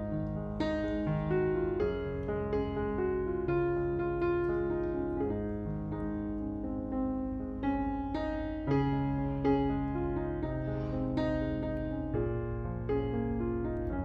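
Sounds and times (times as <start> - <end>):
slow piano music: 0.0 - 14.0.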